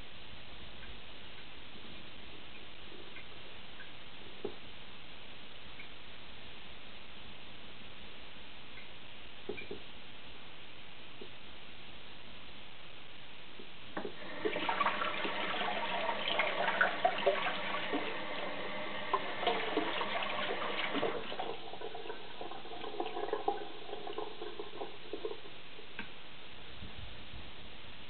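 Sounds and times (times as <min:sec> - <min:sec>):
water running and splashing: 0:14.2 - 0:25.5.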